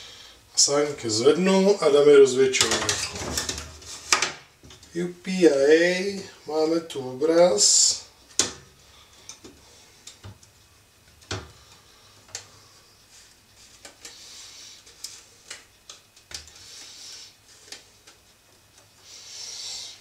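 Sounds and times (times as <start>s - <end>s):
soft rustling: 11.5s - 15.8s.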